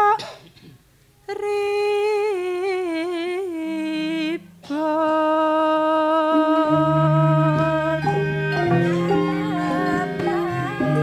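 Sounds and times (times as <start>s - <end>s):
person singing with vibrato: 0.0s - 0.2s, 1.3s - 11.0s
low sustained instrument notes: 3.8s - 11.0s.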